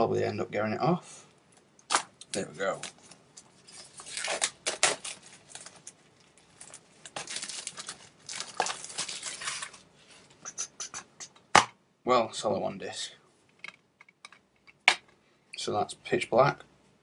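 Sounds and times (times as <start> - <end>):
plastic wrap crinkling and tearing: 1.9 - 9.9.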